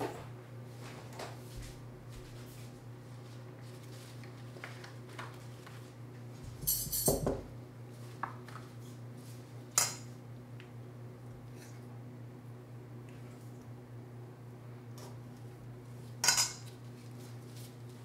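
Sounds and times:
steady low hum: 0:00.0 - 0:18.0
utensils and dishes clattering: 0:06.6 - 0:07.4, 0:16.2 - 0:16.7.

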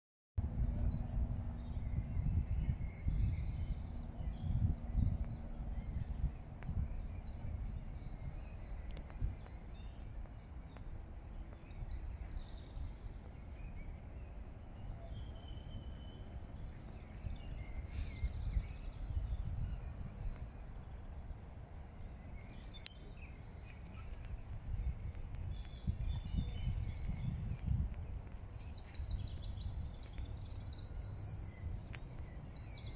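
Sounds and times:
birds chirping and singing: 0:00.4 - 0:32.9
wind rumbling on microphone: 0:00.4 - 0:32.9.

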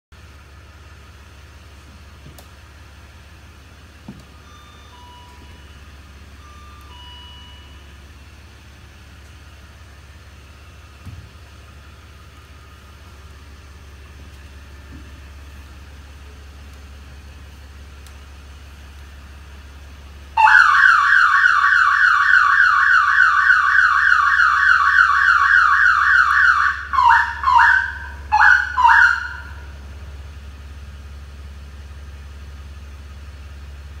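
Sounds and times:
faint electronic alarm beeps: 0:04.3 - 0:08.1
warbling alarm siren: 0:04.4 - 0:08.6, 0:20.4 - 0:29.8.

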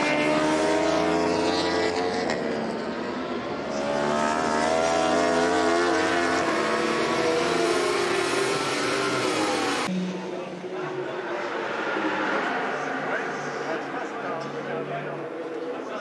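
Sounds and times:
motorcycle engines at high revs: 0:03.6 - 0:09.9.

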